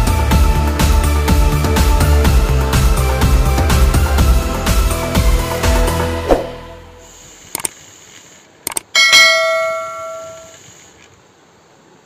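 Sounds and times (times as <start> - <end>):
notification bell ding: 9.0 - 10.5.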